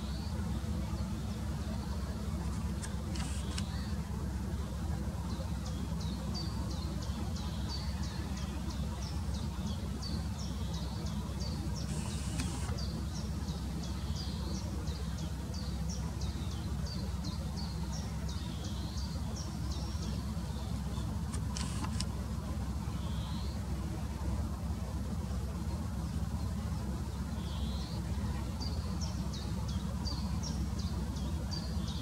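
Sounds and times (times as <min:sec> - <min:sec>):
steady low rumble: 0:00.0 - 0:32.0
brief rustles: 0:02.4 - 0:03.8, 0:11.9 - 0:12.8, 0:21.3 - 0:22.1.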